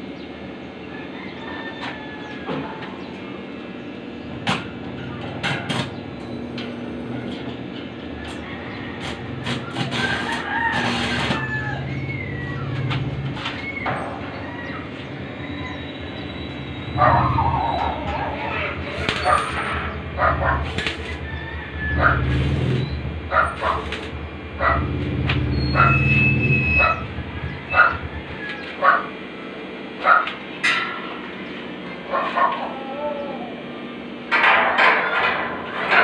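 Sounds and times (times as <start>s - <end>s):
roosters crowing: 0.5s - 36.0s
loud burst of noise: 9.0s - 28.6s.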